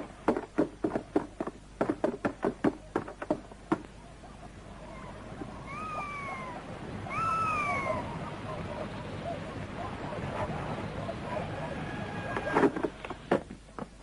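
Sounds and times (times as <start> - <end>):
animal high call: 4.1 - 12.6.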